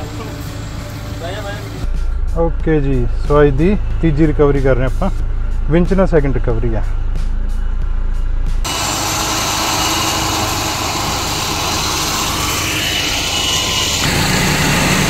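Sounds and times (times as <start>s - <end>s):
off-road vehicle engine running: 0.0s - 15.0s.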